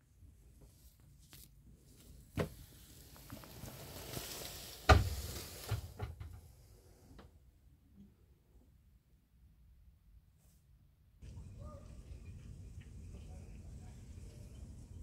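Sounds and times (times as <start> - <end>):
rustling: 0.4 - 7.0.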